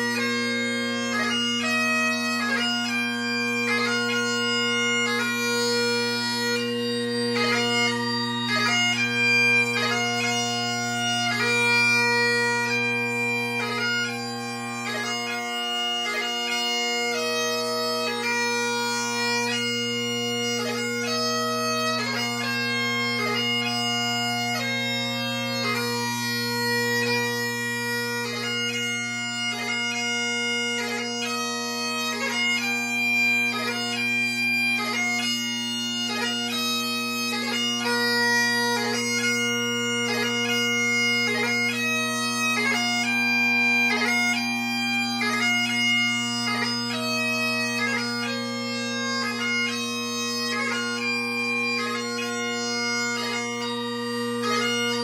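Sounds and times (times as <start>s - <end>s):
bagpipe chanter melody: 0.0s - 55.0s
bagpipe drones: 0.0s - 55.0s.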